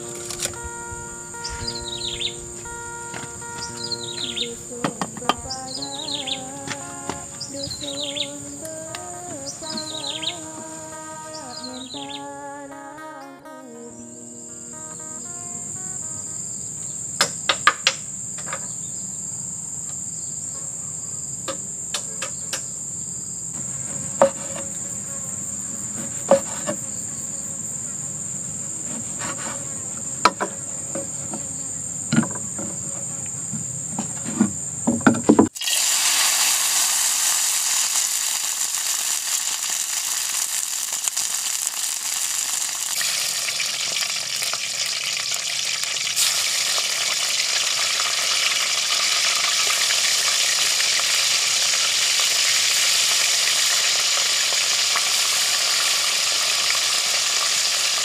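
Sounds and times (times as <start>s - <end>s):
insect drone: 0.0s - 58.0s
food sizzling in wok: 35.5s - 58.0s.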